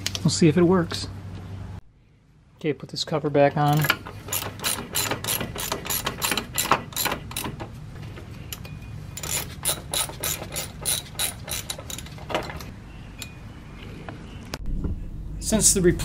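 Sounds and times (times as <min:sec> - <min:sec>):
ratchet wrench clicking: 0:03.7 - 0:07.6, 0:08.6 - 0:12.7.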